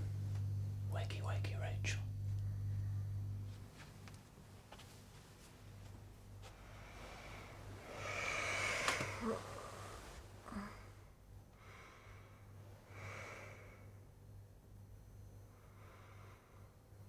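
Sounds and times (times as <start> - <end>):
steady low hum: 0.0 - 17.0
person breathing noisily: 6.6 - 11.0, 11.6 - 14.0.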